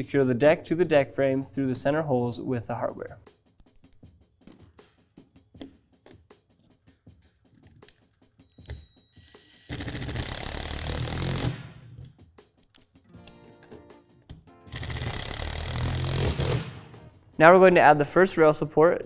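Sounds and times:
cordless drill driving a bolt: 0:09.3 - 0:11.6, 0:14.7 - 0:16.6.

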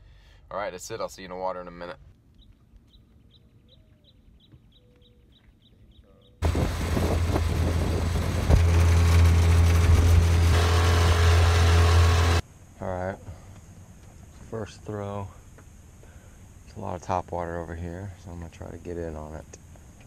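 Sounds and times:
wind: 0:00.0 - 0:20.0
boat motor running: 0:06.4 - 0:12.4.

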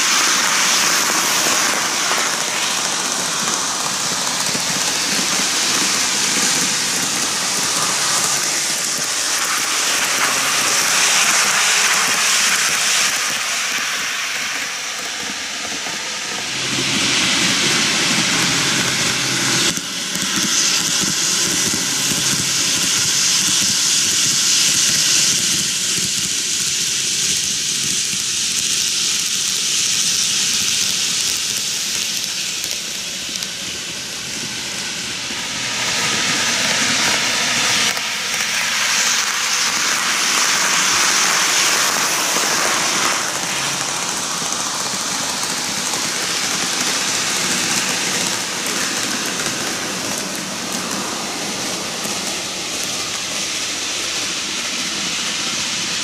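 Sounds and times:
model train rolling rattle: 0:00.0 - 0:56.0
deep rumble: 0:16.3 - 0:23.2.

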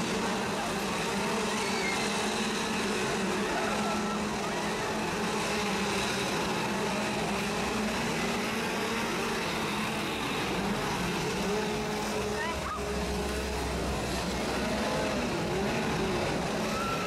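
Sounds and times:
chainsaw engines running: 0:00.0 - 0:17.0.

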